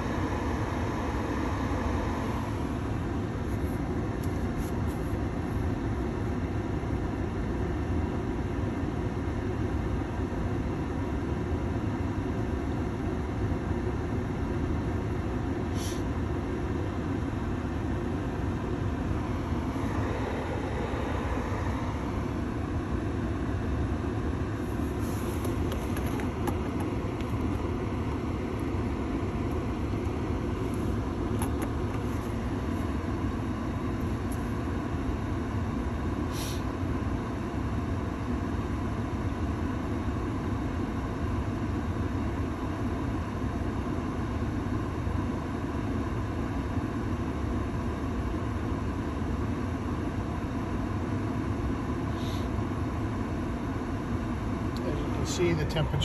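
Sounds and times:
heater blower air rushing: 0.0s - 5.9s, 15.6s - 16.2s, 17.3s - 35.0s, 36.2s - 36.7s.

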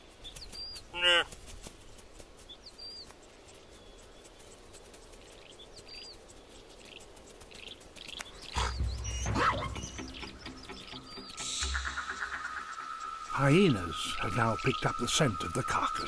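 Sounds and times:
faint outdoor hiss: 0.0s - 16.0s
small birds chirping: 0.0s - 16.0s
pitched animal call: 0.9s - 1.3s, 8.5s - 10.1s.

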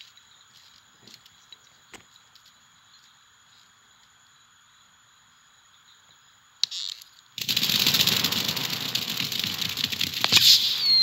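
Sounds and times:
dense noise of rapid ticks: 0.0s - 11.0s
faint hiss: 0.0s - 11.0s
sharp click: 10.0s - 11.0s.

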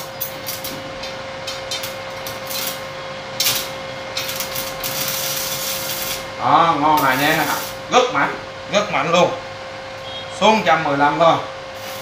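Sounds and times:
arc welding crackling hiss: 0.0s - 0.8s, 1.6s - 7.9s, 11.7s - 12.0s.

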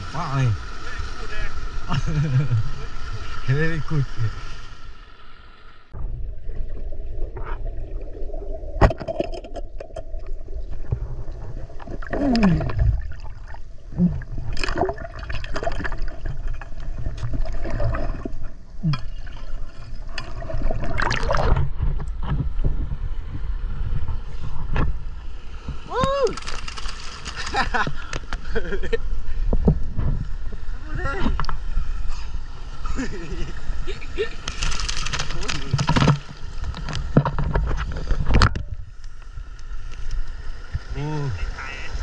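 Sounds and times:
river water gurgling and rushing: 0.0s - 21.8s.

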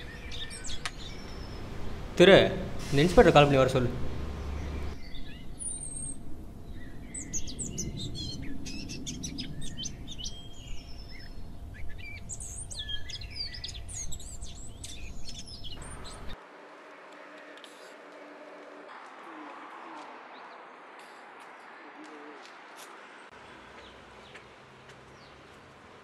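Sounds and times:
birds chirping: 0.0s - 16.4s, 17.2s - 25.6s
low outdoor rumble: 0.9s - 20.3s.

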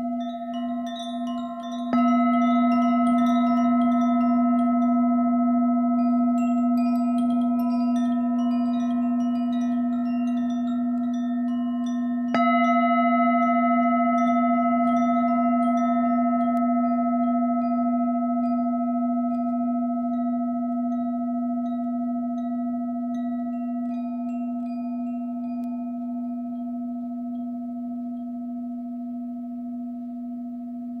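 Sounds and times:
singing bowl ringing: 0.0s - 31.0s
small chimes tinkling: 0.0s - 31.0s.

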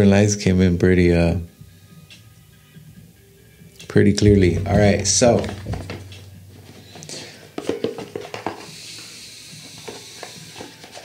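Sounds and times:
small items tapping on tabletop: 4.4s - 6.2s, 7.6s - 8.7s.

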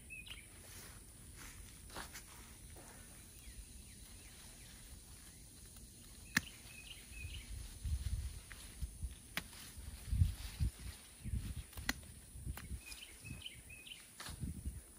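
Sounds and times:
bird chirps: 0.0s - 0.8s, 2.9s - 7.8s, 12.5s - 14.1s.

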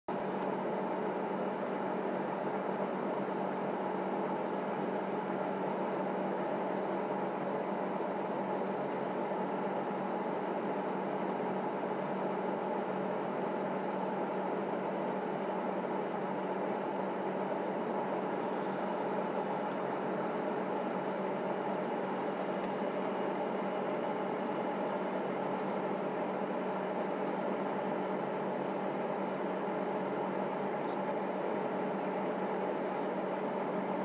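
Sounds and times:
steady hum and hiss: 0.2s - 34.0s.

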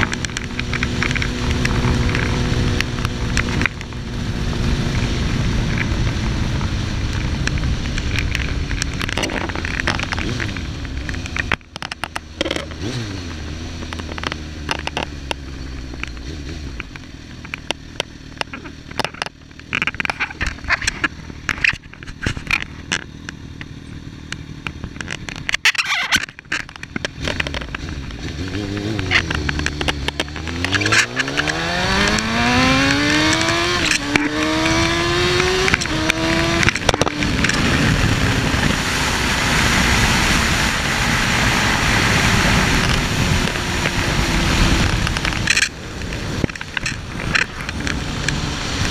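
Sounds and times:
crackling clicks on microphone: 0.0s - 4.0s, 5.5s - 38.8s, 41.6s - 48.9s
motorcycle engine revving: 0.0s - 48.9s
wind rushing on microphone: 30.4s - 48.9s.

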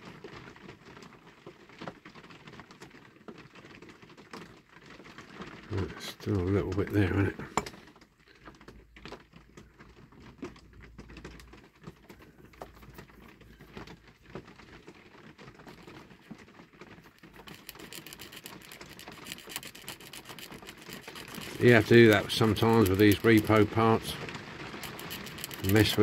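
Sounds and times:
blade scraping plastic: 17.1s - 26.0s.

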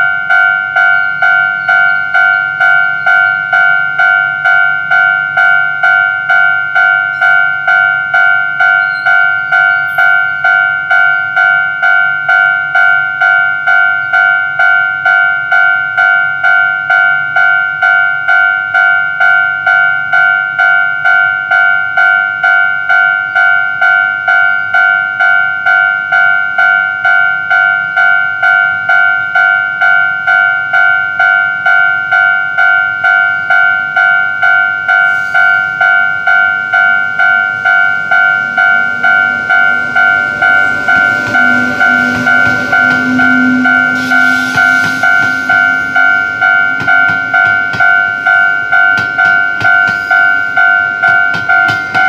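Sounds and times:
train wheel noise: 0.0s - 21.1s, 24.6s - 52.0s
level crossing bell ringing: 0.0s - 52.0s
train motor hum: 36.0s - 52.0s.

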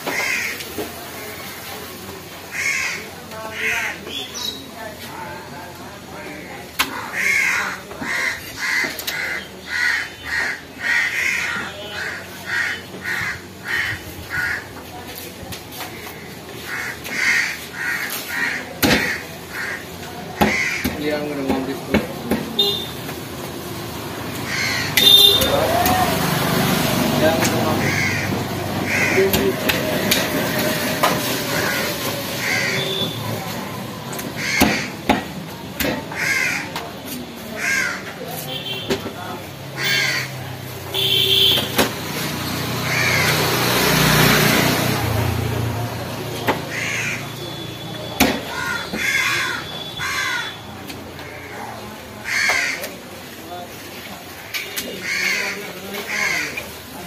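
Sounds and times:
crow cawing: 0.1s - 0.7s, 2.5s - 4.0s, 6.9s - 14.8s, 15.9s - 21.0s, 24.4s - 25.4s, 27.8s - 29.4s, 31.5s - 33.0s, 34.4s - 35.0s, 36.1s - 36.8s, 37.6s - 38.1s, 39.8s - 40.4s, 42.9s - 43.5s, 46.7s - 47.4s, 48.5s - 53.0s, 55.0s - 56.6s.

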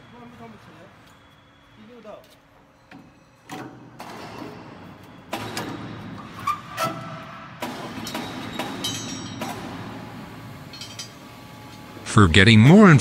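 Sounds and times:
sharp metal knocks and clanks: 7.6s - 9.9s.

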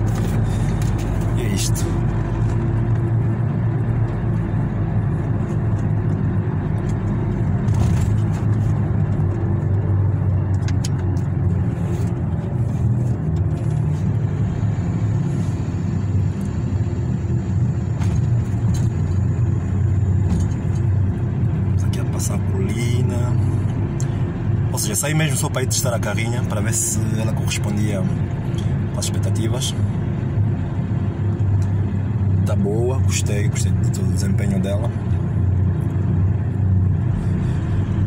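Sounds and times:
engine and road noise in car cab: 0.0s - 38.0s.

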